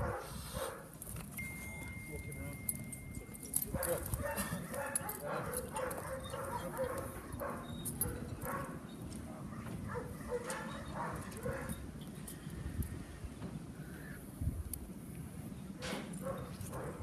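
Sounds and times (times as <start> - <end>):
dog barking: 0.0 - 0.9, 3.8 - 8.8, 9.6 - 11.8, 16.2 - 17.0.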